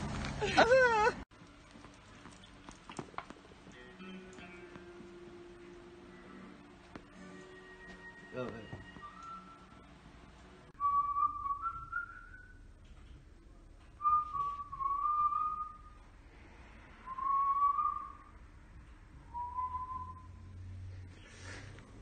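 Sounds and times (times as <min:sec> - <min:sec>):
man whistling: 0:08.9 - 0:09.8, 0:10.8 - 0:12.6, 0:14.0 - 0:16.0, 0:17.0 - 0:18.3, 0:19.3 - 0:20.4.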